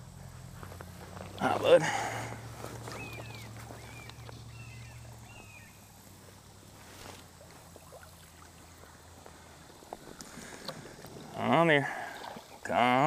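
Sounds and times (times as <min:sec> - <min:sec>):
bird chirping: 0:02.8 - 0:05.9.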